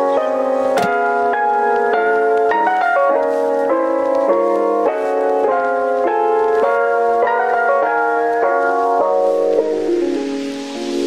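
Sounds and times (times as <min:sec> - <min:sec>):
sustained music chords: 0:08.5 - 0:11.0.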